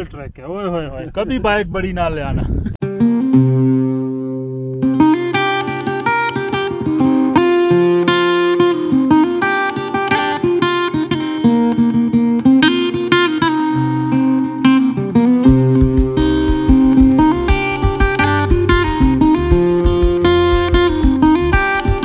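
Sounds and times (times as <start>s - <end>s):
plucked string melody: 2.8s - 22.0s
low bass notes: 15.5s - 22.0s.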